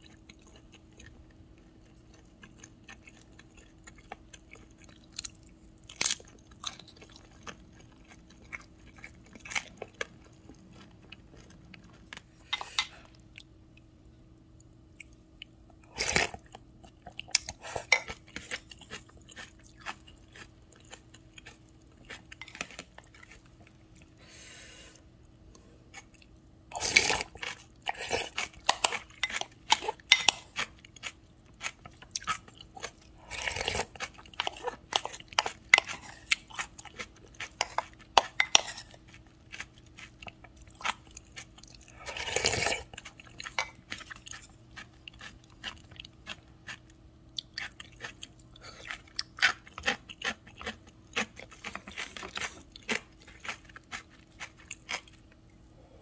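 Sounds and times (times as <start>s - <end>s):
wet chewing and smacking: 0.0s - 13.9s, 14.6s - 24.2s, 25.9s - 55.6s
slurping: 41.9s - 42.9s.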